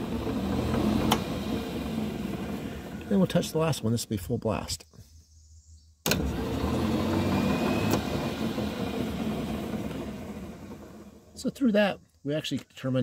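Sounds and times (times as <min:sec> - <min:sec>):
electric motor running with whine: 0:06.1 - 0:11.4.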